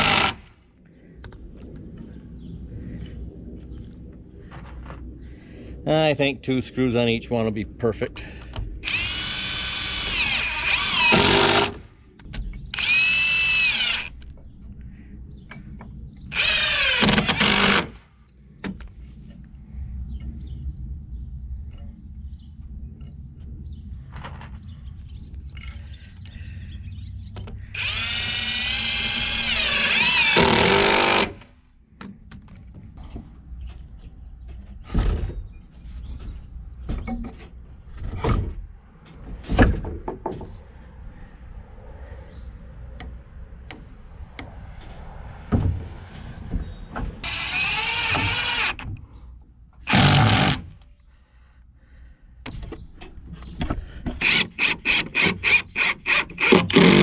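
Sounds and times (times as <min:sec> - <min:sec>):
power drill driving screws: 0:00.0 - 0:00.5, 0:08.8 - 0:11.8, 0:12.7 - 0:14.1, 0:16.3 - 0:18.0, 0:27.8 - 0:31.4, 0:47.2 - 0:48.8, 0:49.9 - 0:50.7, 0:54.2 - 0:57.0.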